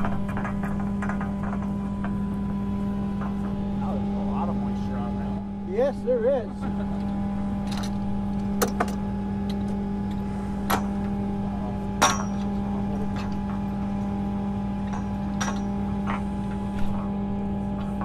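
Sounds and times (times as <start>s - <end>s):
steady engine hum: 0.0s - 18.0s
metal tools clanking on pipe: 12.0s - 14.2s, 14.8s - 16.2s.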